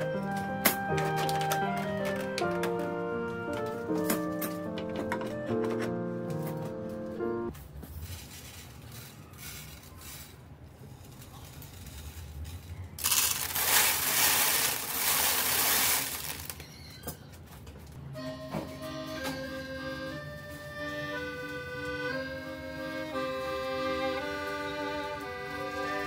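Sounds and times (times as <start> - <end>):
dry grain rattling onto surfaces: 7.9 - 16.6.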